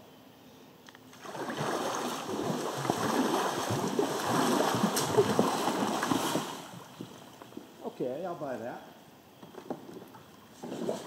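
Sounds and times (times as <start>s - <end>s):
river water rushing and splashing: 1.1s - 7.4s.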